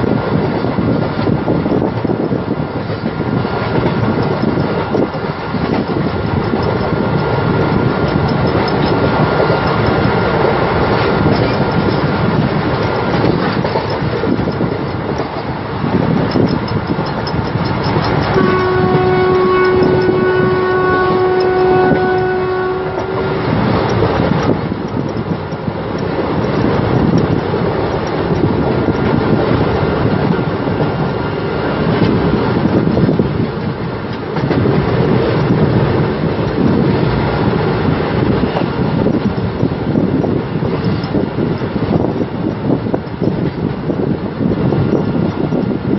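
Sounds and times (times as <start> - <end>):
train wheels rumbling on track: 0.0 - 45.9
locomotive horn: 18.2 - 23.9.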